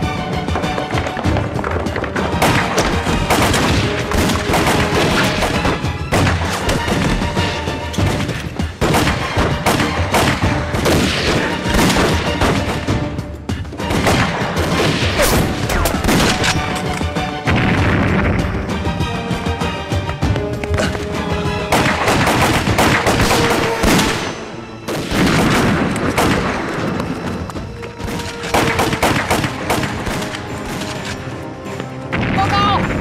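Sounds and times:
gunshots and booms: 0:00.0 - 0:13.2, 0:13.8 - 0:16.8, 0:17.4 - 0:19.1, 0:21.5 - 0:31.0, 0:32.1 - 0:33.0
background music: 0:00.0 - 0:33.0.

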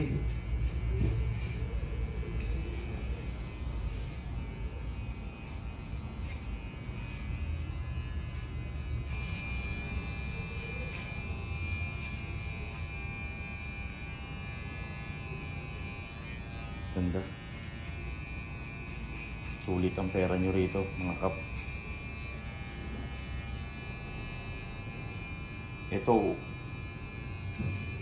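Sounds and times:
hair clipper buzzing: 0:00.0 - 0:28.0.

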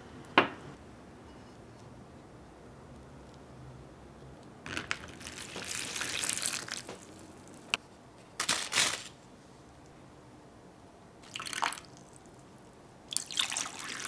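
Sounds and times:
sugar pouring into bag: 0:04.7 - 0:06.9
plastic bag crinkling: 0:04.7 - 0:07.8, 0:08.4 - 0:09.2.

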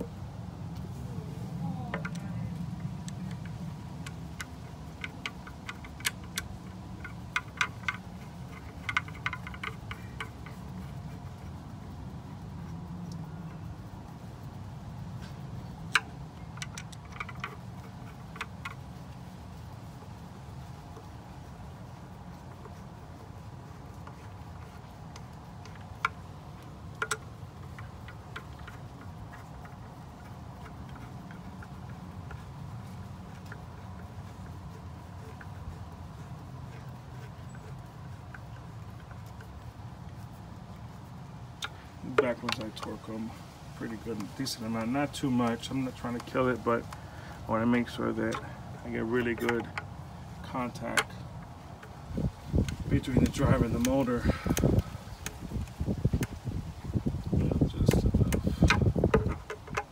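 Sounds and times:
steady low hum: 0:00.0 - 0:59.9
screwdriver ticks and clicks: 0:52.6 - 0:56.4.

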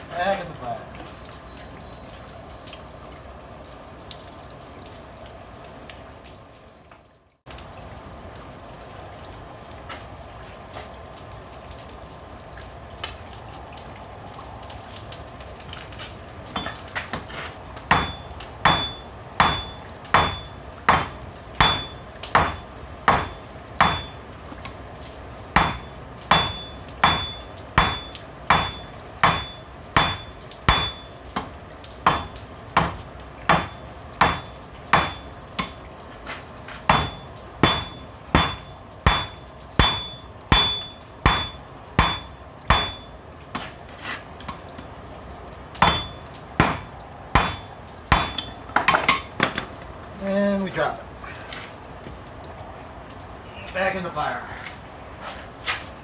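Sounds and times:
anvil ringing: 0:16.6 - 0:16.8, 0:17.9 - 0:24.2, 0:25.6 - 0:31.2, 0:32.1 - 0:35.8, 0:36.9 - 0:43.1, 0:45.8 - 0:48.6
hammer blows on anvil: 0:17.9 - 0:24.2, 0:25.6 - 0:31.2, 0:32.1 - 0:35.8, 0:36.9 - 0:43.1, 0:45.8 - 0:48.6.

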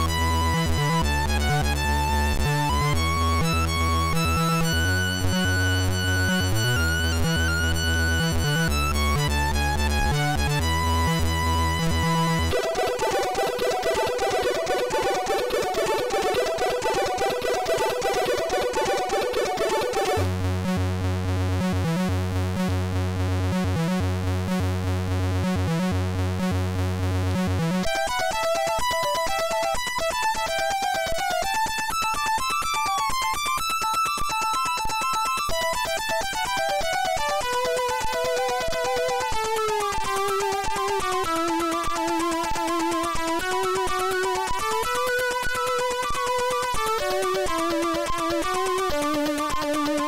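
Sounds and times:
chiptune music: 0:00.0 - 0:20.8, 0:21.6 - 0:22.7, 0:27.3 - 0:31.7, 0:35.6 - 0:50.0
chiptune bass figure: 0:00.2 - 0:28.1
chiptune higher melody: 0:11.8 - 0:20.8.

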